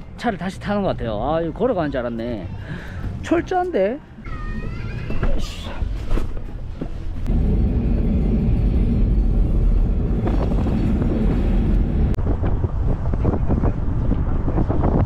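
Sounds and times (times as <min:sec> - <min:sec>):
car driving rumble: 0:05.9 - 0:12.4
wind buffeting microphone: 0:07.2 - 0:15.0.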